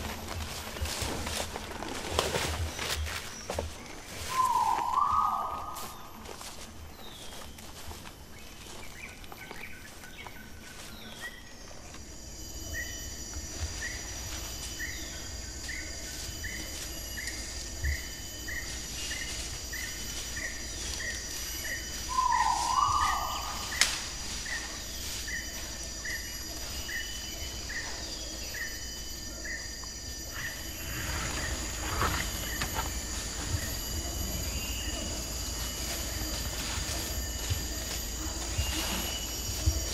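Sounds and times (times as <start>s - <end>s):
foliage rustling: 0.0s - 39.9s
insects droning: 0.0s - 39.9s
bird chirping: 2.7s - 6.2s, 12.7s - 29.7s
loud bird call: 4.3s - 6.0s.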